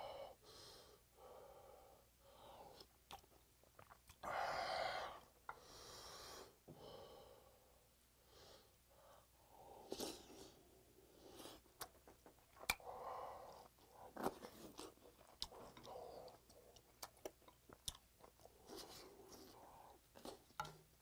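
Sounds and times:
wet mouth clicks and chewing: 2.8 - 4.2, 11.8 - 12.9, 13.5 - 18.7.

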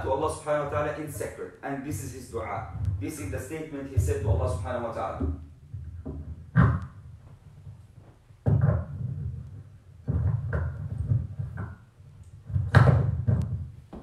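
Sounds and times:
dull knocks and bumps: 3.9 - 14.0.

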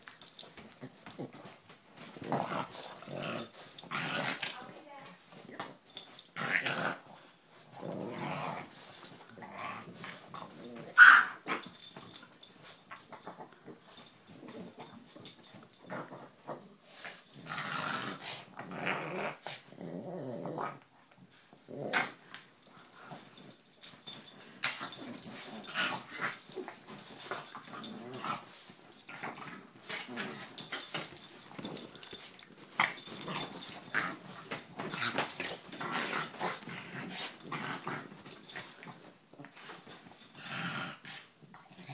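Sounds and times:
dogs play growling: 0.0 - 41.9
dog yipping: 11.0 - 11.4.

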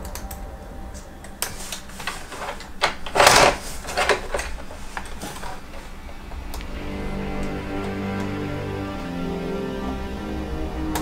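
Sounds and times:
scraping rustle: 1.5 - 6.2.

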